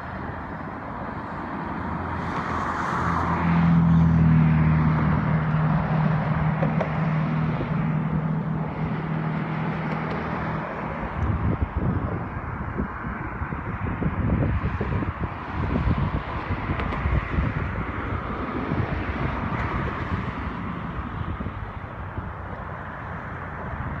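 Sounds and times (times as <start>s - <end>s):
continuous traffic noise: 0.0s - 24.0s
vehicle driving past: 1.8s - 11.0s.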